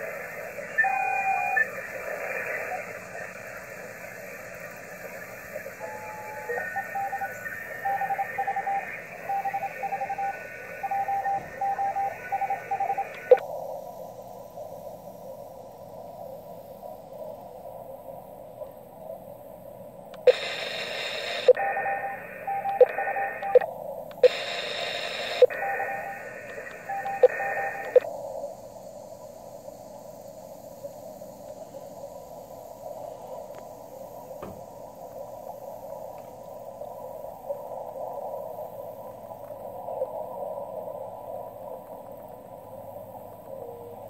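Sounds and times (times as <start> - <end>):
radio band noise hiss: 0.0 - 44.0
morse code beeping: 0.8 - 1.7, 5.8 - 13.4, 24.3 - 28.0
sharp clicks: 22.6 - 25.8, 26.4 - 28.1.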